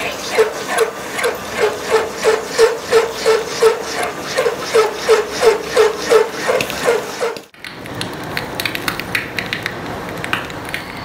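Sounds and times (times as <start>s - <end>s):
lathe tool scraping steel: 0.0s - 7.5s.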